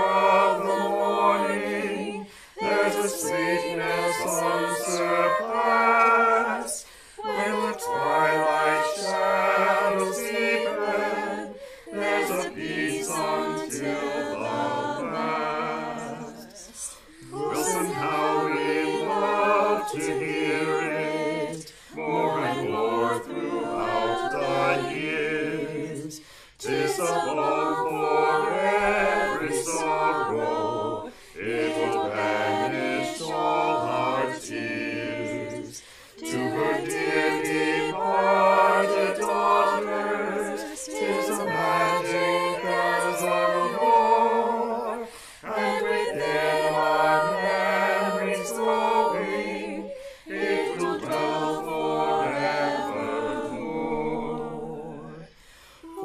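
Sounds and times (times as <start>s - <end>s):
choir singing a cappella: 0.0s - 56.0s.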